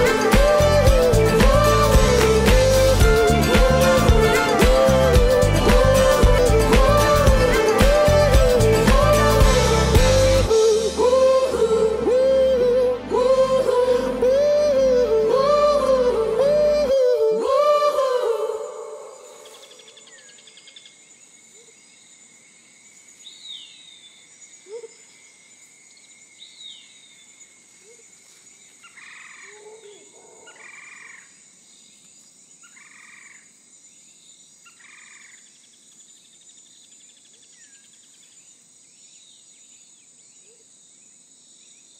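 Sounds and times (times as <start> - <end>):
high-pitched drone: 0.0 - 19.1
croak-like calls: 28.8 - 31.4, 32.6 - 33.5.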